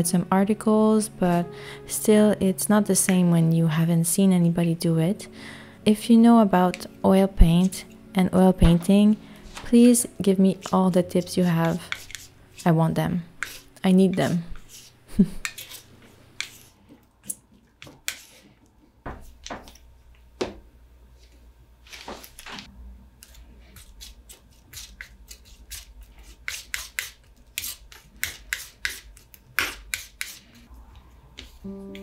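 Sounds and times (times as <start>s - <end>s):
paintbrush scrubbing on palette: 9.4s - 16.9s, 17.8s - 18.6s.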